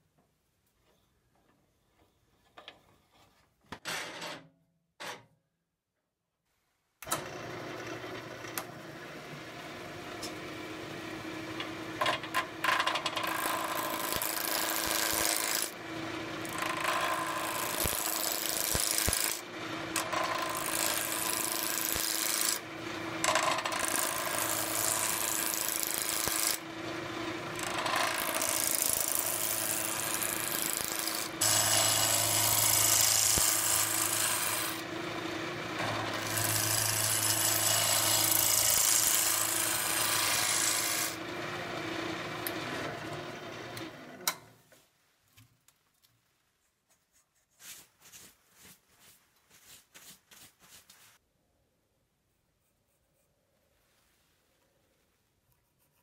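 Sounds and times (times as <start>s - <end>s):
wood lathe humming: 7.0s - 44.2s
gouge shaving spinning wood: 12.7s - 44.0s.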